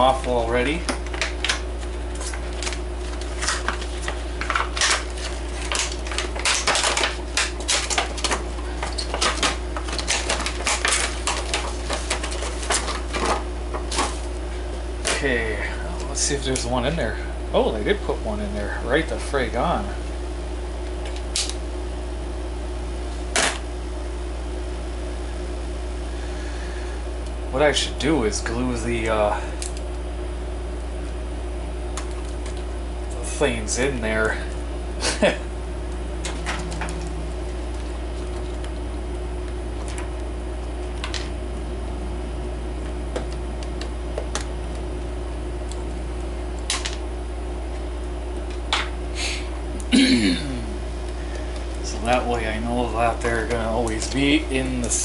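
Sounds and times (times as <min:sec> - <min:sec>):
low background hum: 0:00.0 - 0:55.0.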